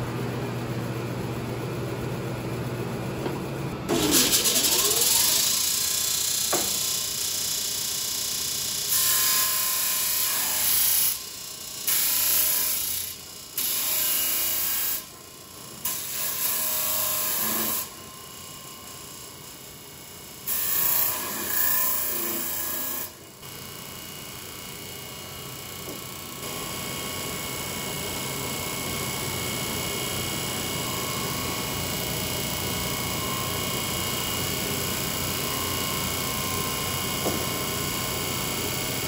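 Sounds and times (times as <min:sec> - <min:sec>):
disc sander running: 0:03.9 - 0:07.2, 0:25.5 - 0:39.0.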